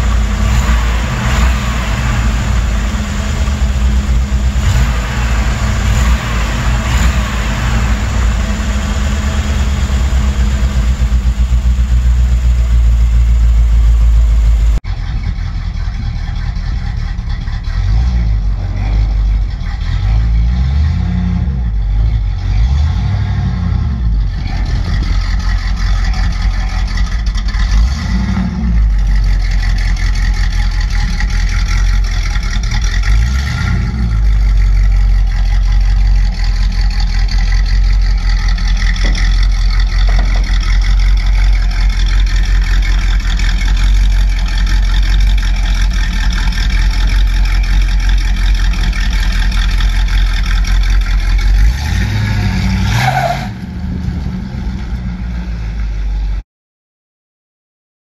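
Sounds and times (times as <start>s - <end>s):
truck engine revving: 0.0s - 56.4s.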